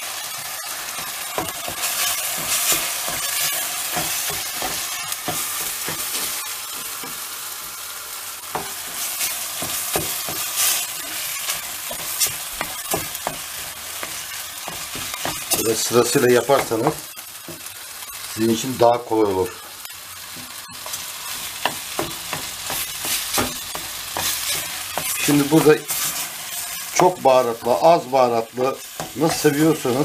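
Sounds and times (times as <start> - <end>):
vegetables sizzling in a pot: 0.0 - 30.0
wooden spoon scraping a pot: 8.8 - 13.4, 22.4 - 26.9.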